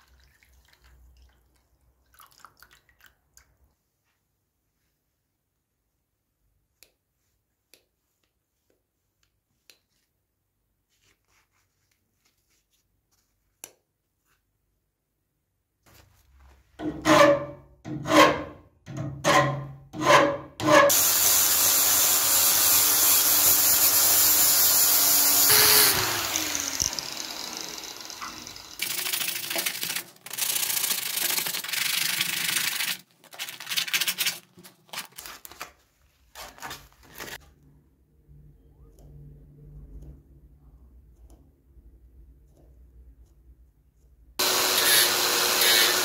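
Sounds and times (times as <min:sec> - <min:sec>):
loud steady hiss winding down: 0:20.9 - 0:28.8.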